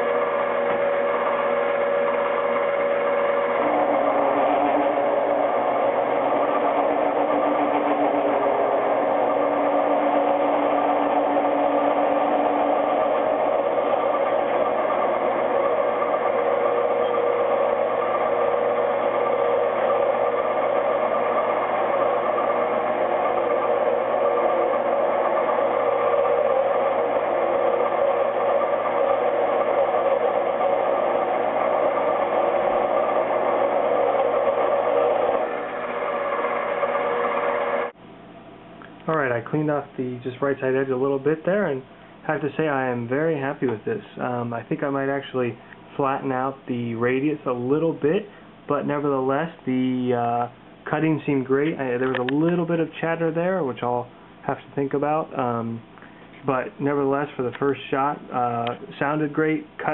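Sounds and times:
metal cutting noise: 0.0 - 38.0
lathe motor whine: 0.0 - 38.4.

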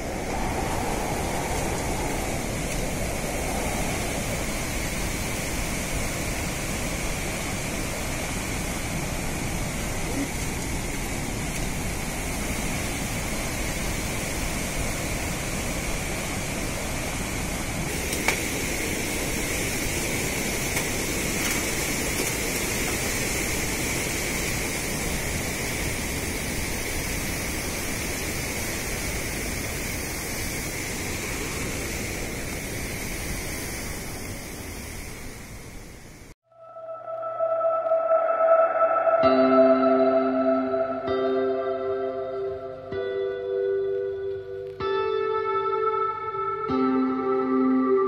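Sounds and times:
mountain stream roaring over boulders: 0.0 - 36.4.

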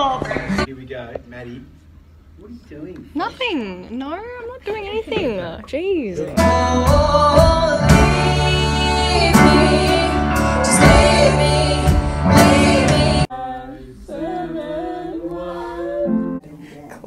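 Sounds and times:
live band playing: 6.3 - 13.3
women singing together: 6.3 - 16.4
drum hits: 6.4 - 13.2.

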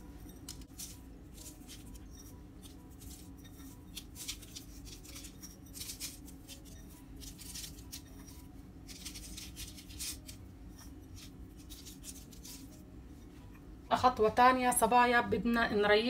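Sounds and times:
low room hum: 0.0 - 16.0
seeds sprinkled onto paper rustling: 0.4 - 12.8.

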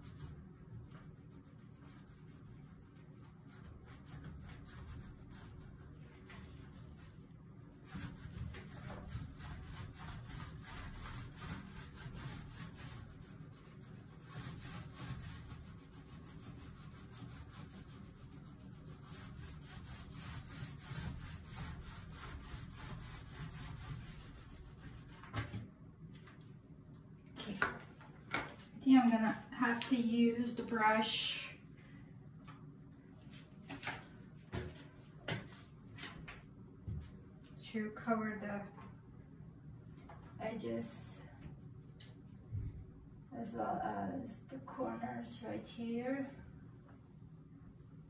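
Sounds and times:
paint roller rubbing on tiles: 0.0 - 25.4.

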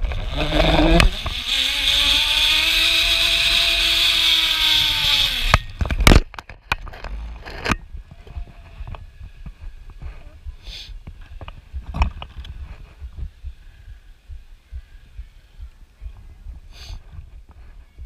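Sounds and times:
zip line pulley whirring on cable: 0.0 - 6.1.

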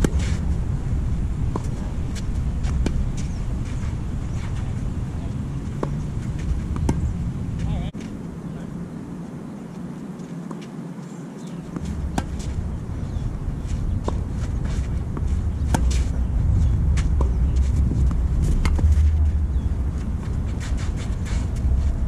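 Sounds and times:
low rumble: 0.0 - 8.2, 11.8 - 22.0
tennis racket hitting ball: 5.7 - 7.7, 11.8 - 12.6, 14.0 - 16.2.

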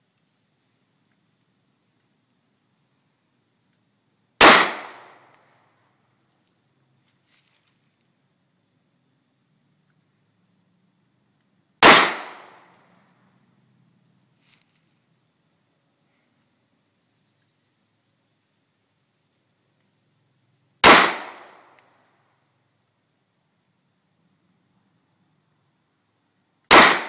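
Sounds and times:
handgun shots: 4.4 - 5.3, 11.8 - 12.7, 20.8 - 21.8, 26.7 - 27.0.

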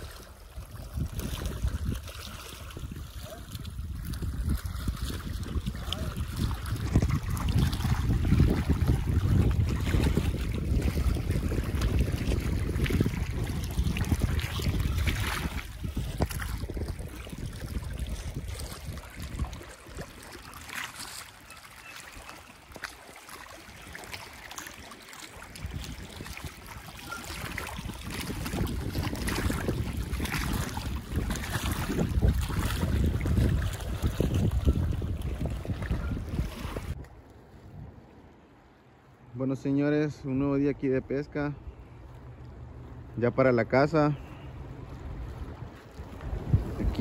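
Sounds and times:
wind buffeting microphone: 0.0 - 21.1, 25.3 - 38.3, 44.5 - 47.0
water lapping at rocky shore: 0.0 - 39.4, 41.2 - 47.0.

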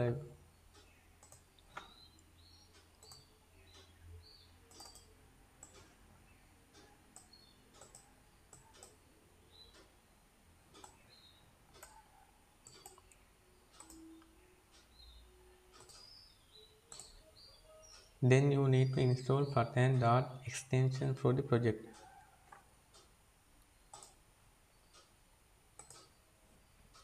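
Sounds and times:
faint computer mouse clicks: 0.8 - 3.9, 4.7 - 5.9, 7.2 - 9.0, 12.6 - 14.9, 15.8 - 16.3, 16.9 - 17.2, 23.9 - 24.2, 25.8 - 26.2.

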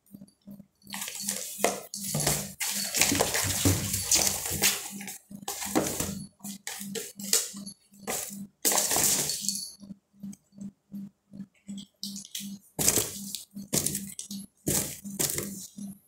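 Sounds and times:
faint low pulse: 9.7 - 12.6.

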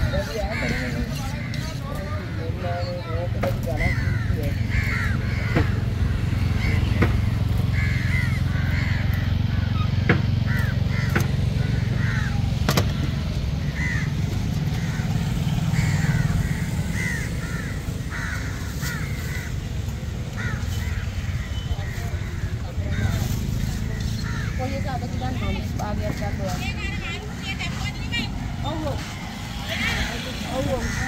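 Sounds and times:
crows cawing: 0.0 - 31.0
sharp knocks: 10.0 - 10.4.

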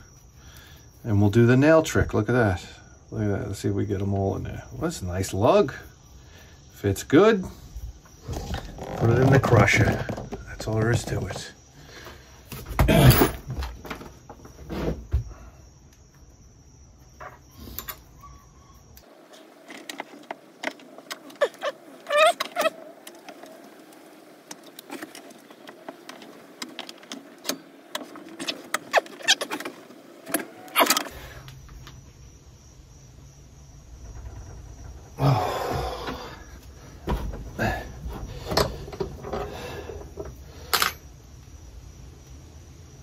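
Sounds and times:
short squeaks: 20.7 - 23.7, 24.7 - 31.2
metal clicks and knocks: 38.1 - 41.0.

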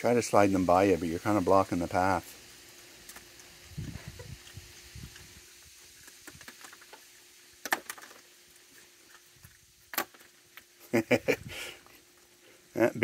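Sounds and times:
faint steady hum: 0.0 - 13.0
peanuts clicking on wooden deck: 6.0 - 8.3.

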